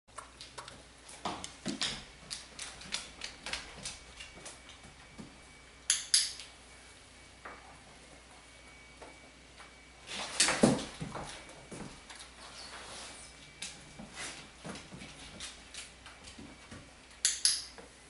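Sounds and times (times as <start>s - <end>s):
dog claws clicking on wooden floor: 0.1s - 4.3s.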